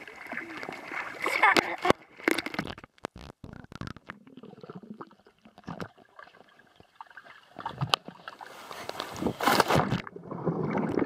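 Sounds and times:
pool water sloshing underwater: 0:00.0 - 0:02.8.

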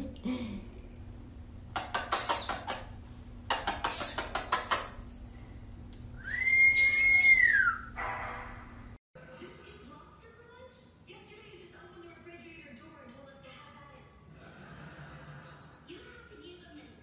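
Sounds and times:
marmoset whistles and chirps: 0:00.0 - 0:01.2, 0:02.1 - 0:03.1, 0:03.9 - 0:05.6, 0:06.4 - 0:09.0.

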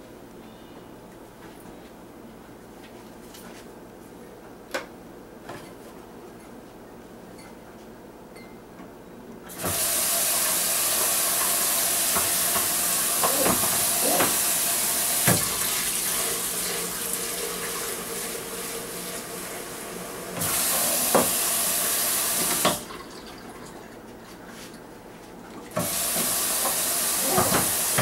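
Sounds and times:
faucet turned on: 0:09.6 - 0:23.7, 0:25.8 - 0:28.0
tap water running into sink: 0:09.6 - 0:24.0, 0:25.7 - 0:28.0
tap shut off: 0:20.4 - 0:21.4.

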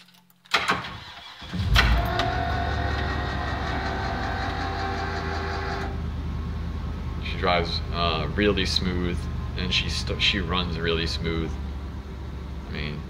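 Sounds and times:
engine starter cranking: 0:00.5 - 0:06.0
bus engine idling: 0:01.8 - 0:13.0.

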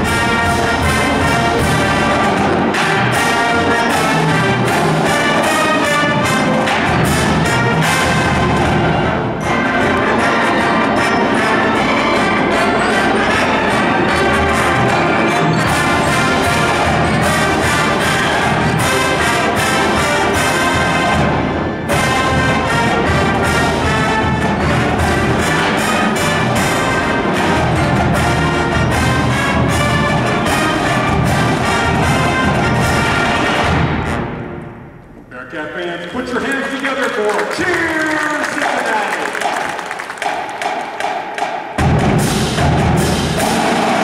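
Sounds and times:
marching band playing brass music: 0:00.0 - 0:35.5, 0:37.3 - 0:44.0
marching bass drums: 0:41.1 - 0:44.0.

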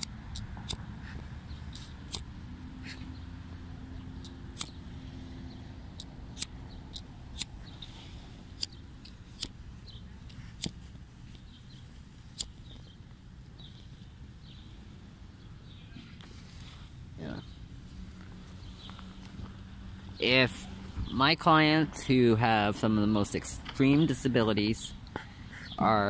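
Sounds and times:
clicks and crunches in grass: 0:00.0 - 0:03.2, 0:06.0 - 0:14.2
steady low rumble: 0:00.0 - 0:26.0.

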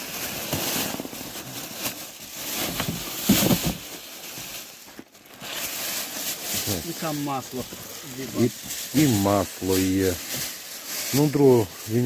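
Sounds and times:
plastic wrapping rustling: 0:00.0 - 0:12.0
cardboard scraping: 0:02.4 - 0:06.7.

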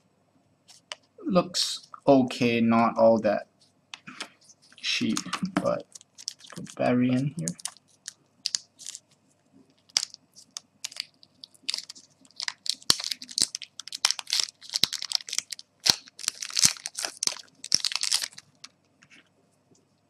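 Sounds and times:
plastic wrapper crinkling: 0:04.6 - 0:18.8.

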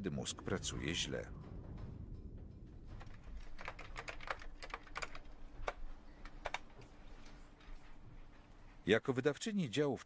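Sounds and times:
computer keyboard typing: 0:03.0 - 0:06.8.

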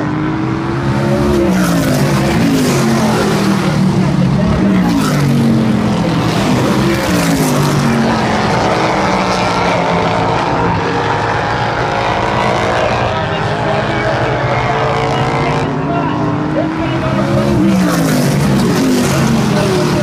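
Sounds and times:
race car engines running hard: 0:00.0 - 0:20.0.

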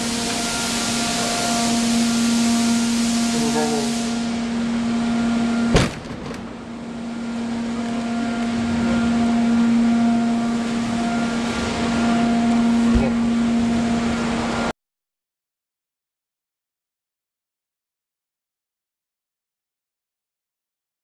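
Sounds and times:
hiss: 0:00.0 - 0:05.2
steady machine hum: 0:00.0 - 0:14.8.

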